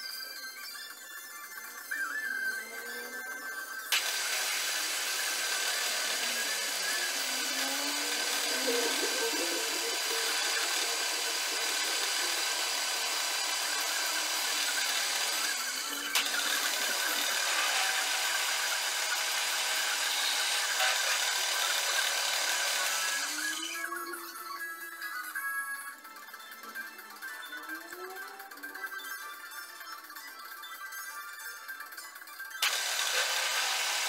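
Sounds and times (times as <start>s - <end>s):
milling machine drilling metal: 3.9s - 23.4s, 32.6s - 34.0s.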